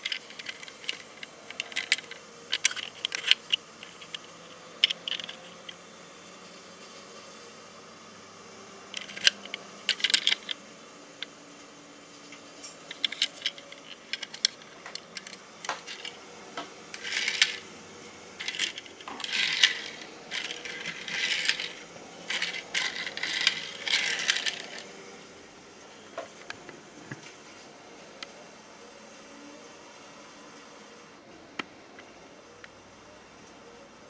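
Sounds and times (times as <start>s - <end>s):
metal toy buses clinking: 0.0s - 5.8s, 8.8s - 10.6s, 12.6s - 25.0s.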